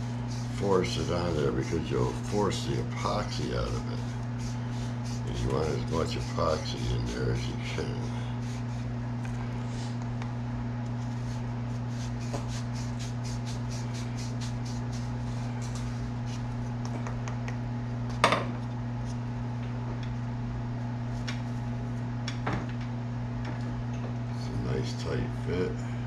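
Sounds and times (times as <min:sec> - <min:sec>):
reamer scraping wood bore: 0:00.0 - 0:09.0
steady low hum: 0:00.0 - 0:26.0.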